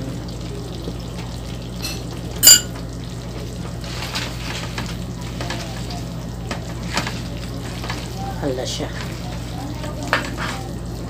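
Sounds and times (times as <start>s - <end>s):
sauce sizzling in a frying pan: 0.0s - 11.0s
sharp ringing clink: 2.4s - 2.7s
spaghetti being tossed and stirred: 2.8s - 11.0s.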